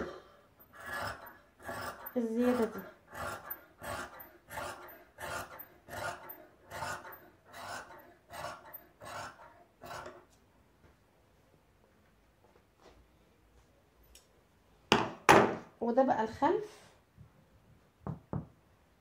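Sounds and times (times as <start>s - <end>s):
shears cutting fabric: 0.8s - 10.2s.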